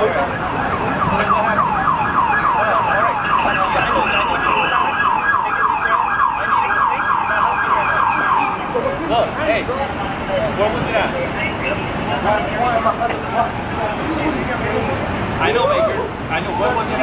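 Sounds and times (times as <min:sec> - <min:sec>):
emergency siren yelping: 0:00.0 - 0:09.1.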